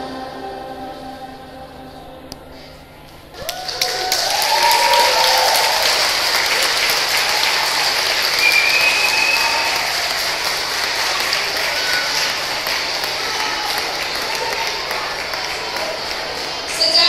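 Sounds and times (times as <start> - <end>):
children clapping: 3.4 - 17.0
children calling out: 11.2 - 16.7.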